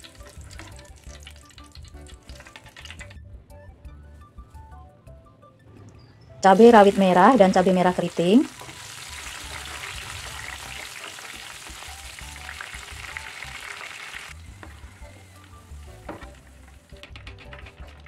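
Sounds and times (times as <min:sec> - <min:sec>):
chilies sizzling in hot oil: 0:00.0 - 0:03.0, 0:06.4 - 0:17.0
spatula stirring: 0:08.5 - 0:13.8.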